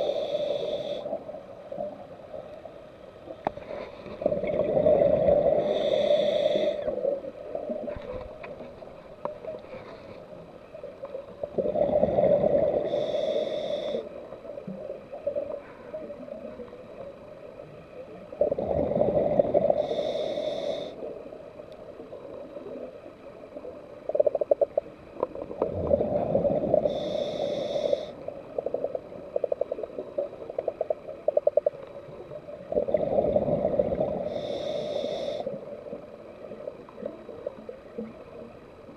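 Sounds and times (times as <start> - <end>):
underwater gurgling and bubbly rattles: 0.0 - 38.9.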